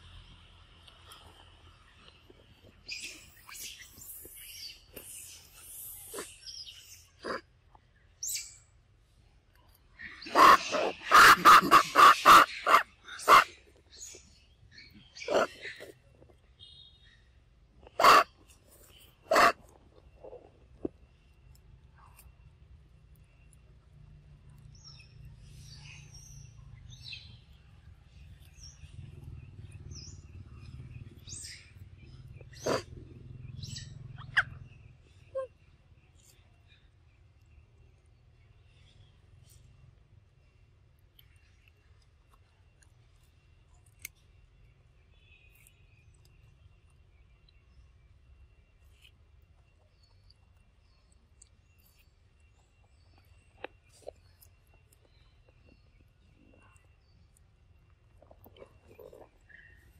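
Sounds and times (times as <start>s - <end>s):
low steady rumble: 0.0s - 6.0s, 17.4s - 59.9s
small birds chirping: 0.0s - 59.9s
macaque calls: 7.2s - 7.4s, 10.2s - 13.5s, 15.2s - 15.9s, 17.9s - 18.3s, 19.3s - 19.6s, 32.6s - 32.9s.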